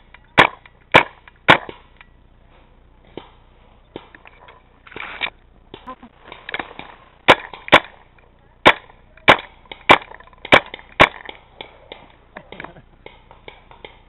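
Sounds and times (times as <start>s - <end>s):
paintball markers firing: 8.6s - 14.0s.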